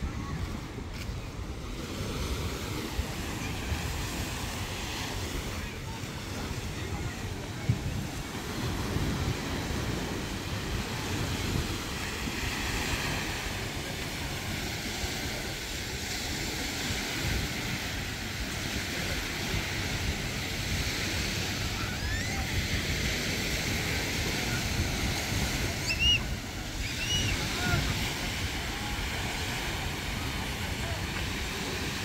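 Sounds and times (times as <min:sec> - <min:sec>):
waves washing onto beach: 0:00.0 - 0:32.0
wind buffeting microphone: 0:00.0 - 0:32.0
short high calls: 0:25.8 - 0:27.4.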